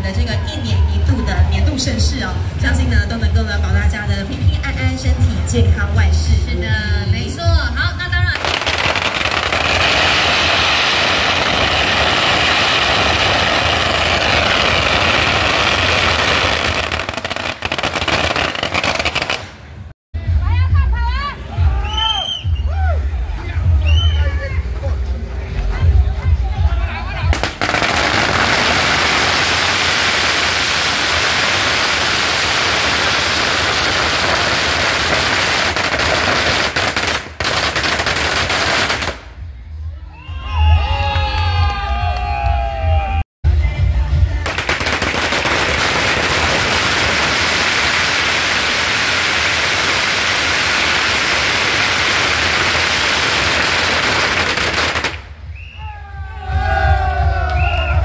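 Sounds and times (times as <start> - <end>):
firecrackers crackling and banging: 8.2 - 19.9, 27.3 - 39.4, 44.4 - 55.7.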